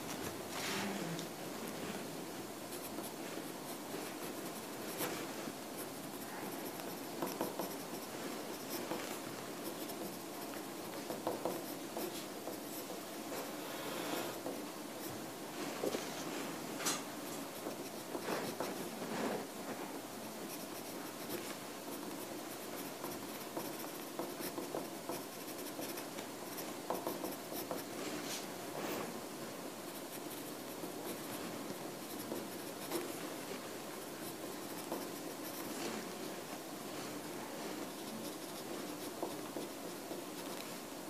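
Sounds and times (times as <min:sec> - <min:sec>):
pen scratching on paper: 0:02.7 - 0:15.1, 0:17.5 - 0:19.4, 0:20.5 - 0:28.0, 0:29.9 - 0:36.2, 0:37.8 - 0:40.6.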